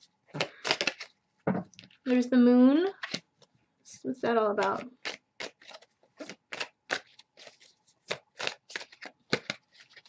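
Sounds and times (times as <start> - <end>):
cards being shuffled: 0.4 - 1.2, 4.6 - 10.0.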